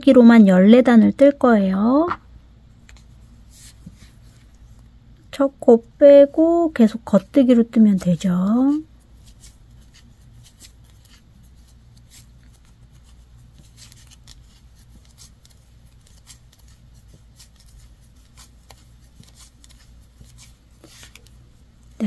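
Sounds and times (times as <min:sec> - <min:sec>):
low room hum: 0:00.0 - 0:22.0
yarn rubbing on needles: 0:06.4 - 0:22.0.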